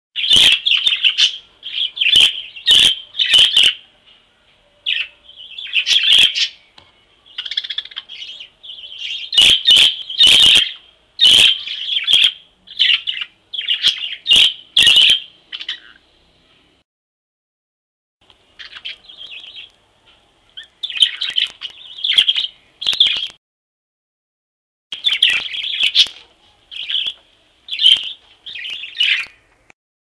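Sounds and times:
budgerigars chirping and chattering: 0.2s - 3.8s, 4.8s - 6.7s, 7.3s - 16.0s, 18.5s - 19.8s, 20.5s - 23.4s, 25.0s - 29.4s
loud sharp bird chirps: 0.2s - 3.9s, 4.8s - 16.1s, 20.6s - 23.4s, 24.9s - 29.5s.

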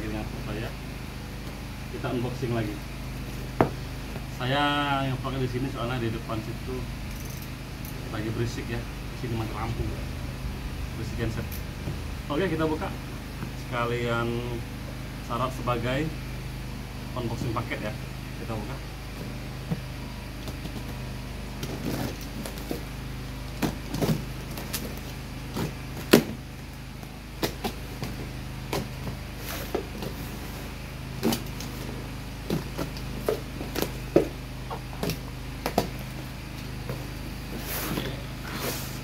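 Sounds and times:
generator hum: 0.0s - 39.0s.

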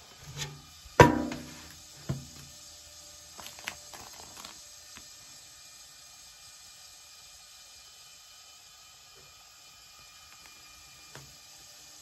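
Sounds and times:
metal tin knocking and ringing: 1.0s - 1.6s
plastic sheet crackling: 3.4s - 4.6s.

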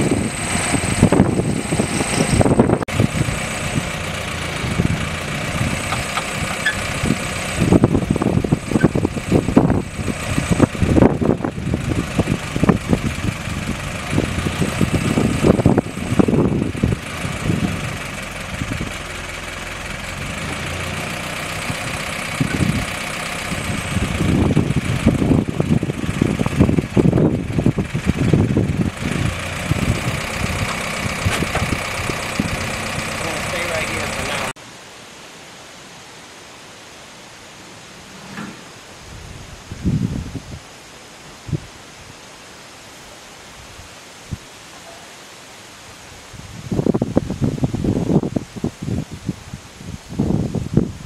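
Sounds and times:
wind rumbling on microphone: 0.0s - 19.2s, 21.6s - 33.3s, 38.0s - 40.7s, 41.3s - 42.2s, 46.0s - 51.0s
jeep engine idling: 0.0s - 34.6s.

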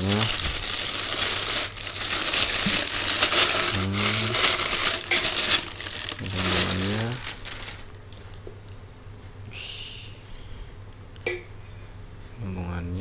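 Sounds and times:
plastic wrapping crinkling: 0.0s - 8.4s.

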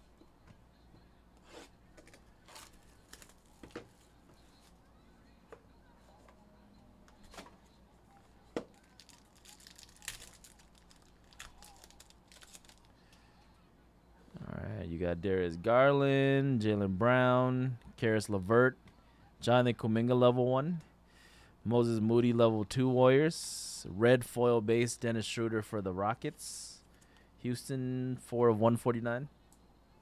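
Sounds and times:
plastic wrapping crinkling and tearing: 2.0s - 3.8s, 8.7s - 12.9s
cards clicking and rustling: 8.6s - 12.9s.

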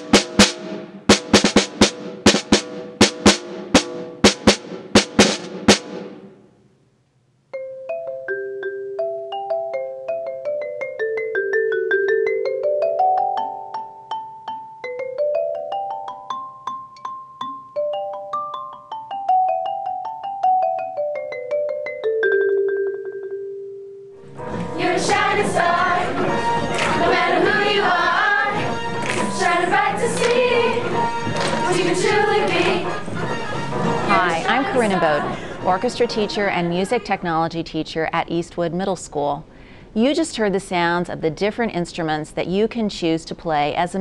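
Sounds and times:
xylophone played with mallets: 7.6s - 24.2s
children's choir singing: 24.3s - 37.0s.

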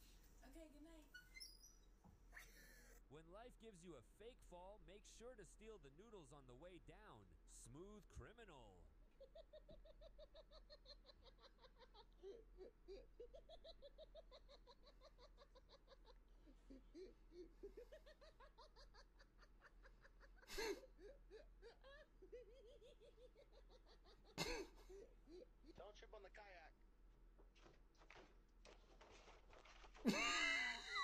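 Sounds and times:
people laughing: 8.5s - 26.0s, 30.0s - 31.0s.

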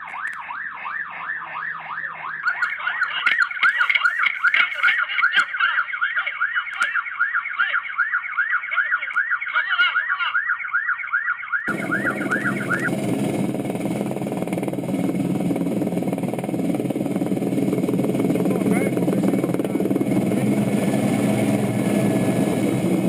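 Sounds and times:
siren wailing up and down: 0.0s - 23.0s
vehicle engine and wind noise: 11.7s - 23.0s.

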